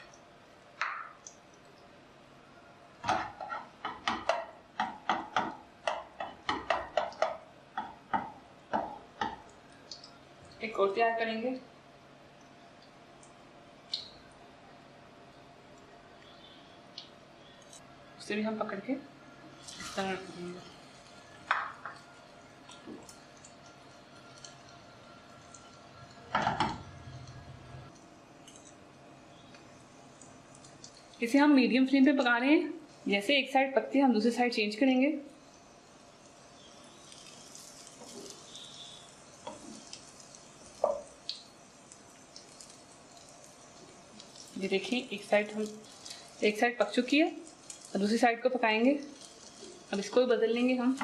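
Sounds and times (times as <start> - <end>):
faint steady hiss: 0.0 - 51.0
utensil knocking on cookware: 3.1 - 9.4.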